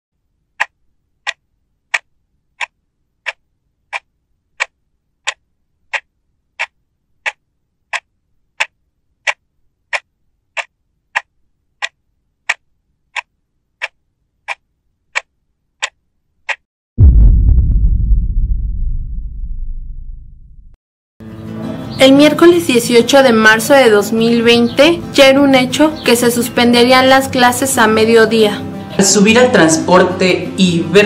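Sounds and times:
clock ticking: 0:00.5 - 0:16.6.

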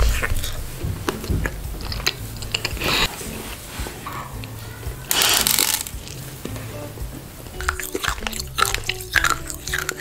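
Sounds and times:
chewing cake with crunches: 0:00.0 - 0:03.1, 0:07.6 - 0:10.0.

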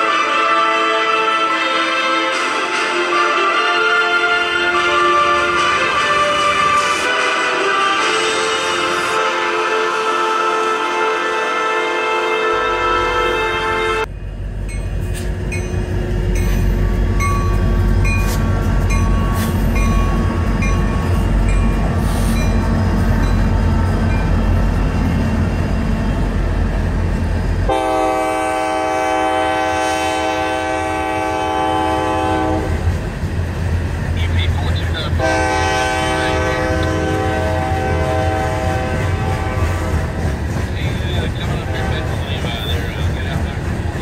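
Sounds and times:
train horn chord: 0:00.0 - 0:14.1, 0:27.7 - 0:32.9, 0:35.2 - 0:40.2, 0:41.4 - 0:43.0
diesel locomotive engine rumble: 0:00.0 - 0:44.0
train wheels clicking on rails: 0:14.6 - 0:27.8, 0:36.7 - 0:44.0.

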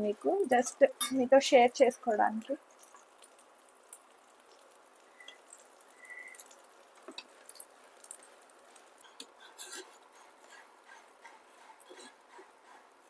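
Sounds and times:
food sizzling in a pan: 0:00.0 - 0:13.0
metal spatula scraping a pan: 0:08.8 - 0:13.0.

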